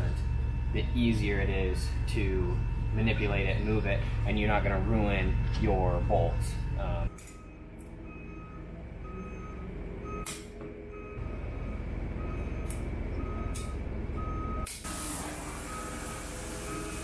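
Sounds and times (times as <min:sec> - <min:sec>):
low steady rumble: 0:00.0 - 0:16.6
gas torch lighting click: 0:14.6 - 0:15.2
gas torch hissing: 0:14.7 - 0:17.0.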